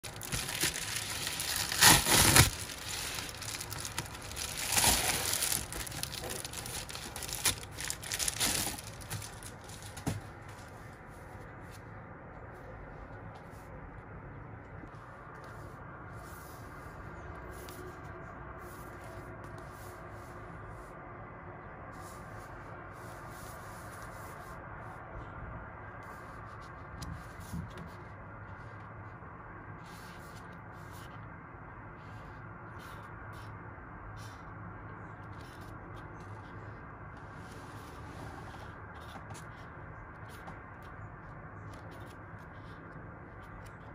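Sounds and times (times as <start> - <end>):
plastic mailer tearing and crinkling: 0.0 - 10.2
book pages rustling: 0.0 - 11.9.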